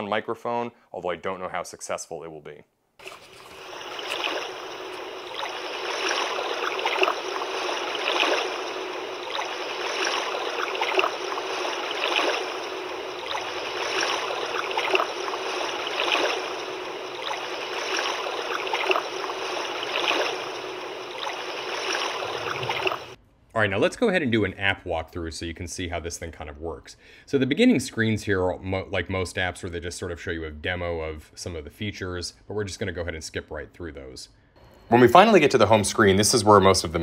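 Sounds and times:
water-like rushing noise: 0:03.0 - 0:23.2.

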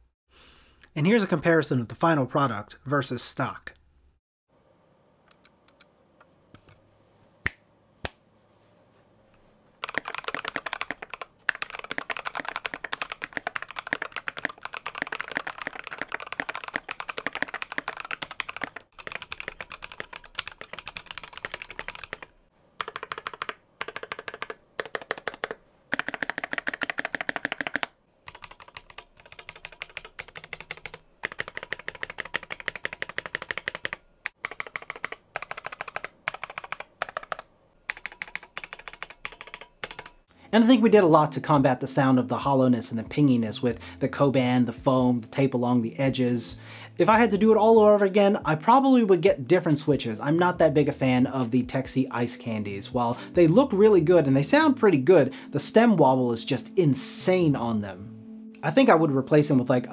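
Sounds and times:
mechanical keyboard typing: 0:09.8 - 0:40.2.

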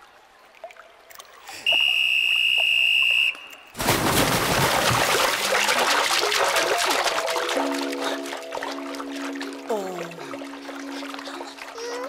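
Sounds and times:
whistle blast: 0:01.6 - 0:03.7
swimmers splashing in water: 0:01.6 - 0:12.0.

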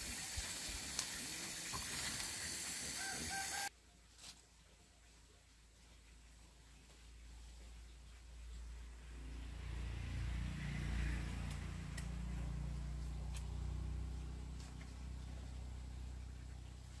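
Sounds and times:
low engine hum: 0:08.2 - 0:17.0.

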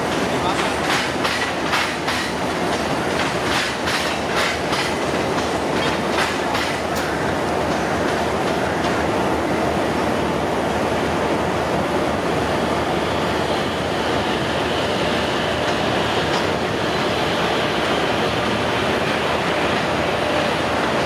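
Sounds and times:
electric locomotive running: 0:11.8 - 0:21.0.

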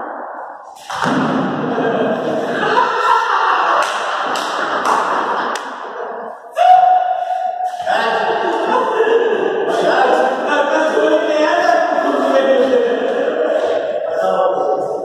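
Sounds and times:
voices shouting in echoing hall: 0:00.0 - 0:15.0
sharp knocks and thuds: 0:00.9 - 0:01.6.

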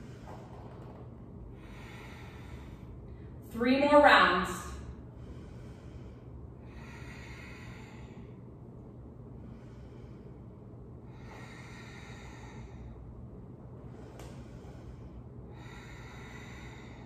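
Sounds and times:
steady low hum: 0:00.0 - 0:17.0
woman breathing: 0:00.0 - 0:17.0.

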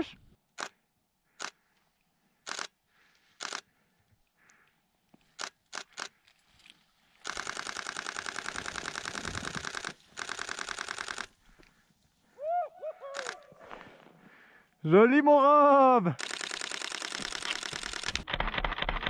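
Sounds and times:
camera shutter clicking: 0:00.6 - 0:00.8, 0:01.4 - 0:01.6, 0:02.4 - 0:02.8, 0:03.4 - 0:03.7, 0:05.4 - 0:06.2, 0:07.2 - 0:11.3, 0:13.1 - 0:13.5, 0:16.2 - 0:19.0.

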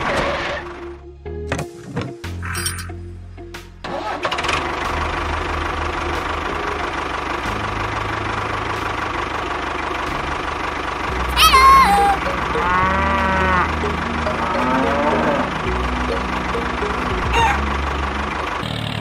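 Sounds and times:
motor running: 0:04.2 - 0:19.0
cow mooing: 0:11.9 - 0:15.7.

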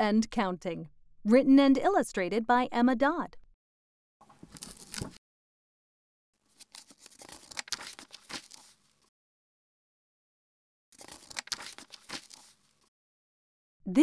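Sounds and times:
book pages rustling: 0:04.3 - 0:05.2, 0:06.4 - 0:09.1, 0:11.0 - 0:12.9.

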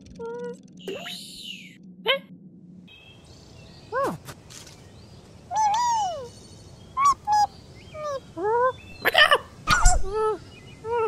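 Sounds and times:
cartoon bird chirps and squawks: 0:00.8 - 0:01.7, 0:05.5 - 0:06.3, 0:07.0 - 0:11.0.

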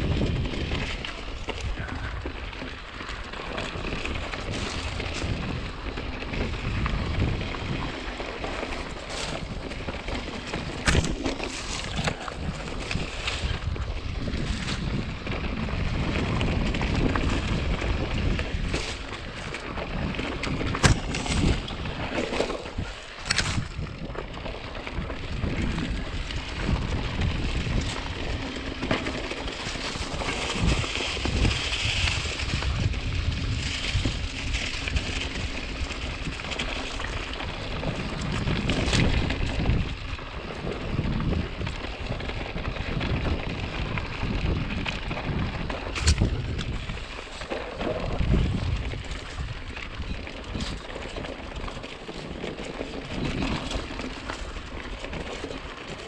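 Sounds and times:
bike rattling: 0:00.0 - 0:56.0
tyres rumbling on dirt trail: 0:00.0 - 0:56.0
wind rushing over microphone: 0:00.0 - 0:56.0.

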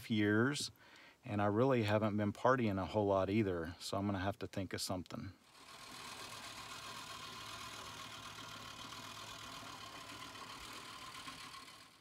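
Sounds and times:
lawn mower engine running: 0:05.4 - 0:12.0.

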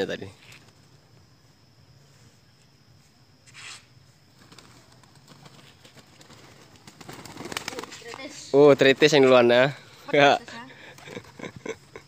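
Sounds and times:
pigeon wings flapping: 0:04.4 - 0:09.2, 0:10.9 - 0:11.7.

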